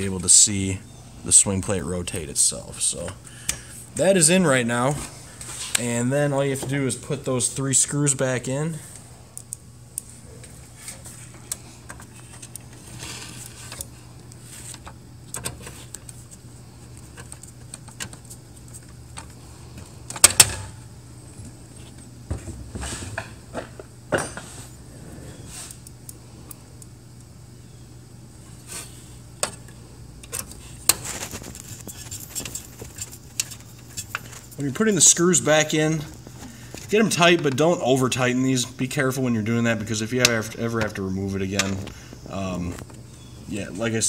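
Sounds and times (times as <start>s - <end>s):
steady low hum: 0.0s - 44.0s
screwdriver and screws on metal: 29.4s - 34.6s.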